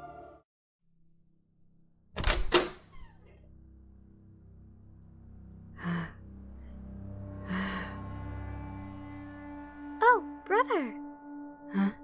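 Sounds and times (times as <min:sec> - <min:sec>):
door unlatching clacks: 0:02.2 - 0:03.4
low music drone: 0:03.5 - 0:12.0.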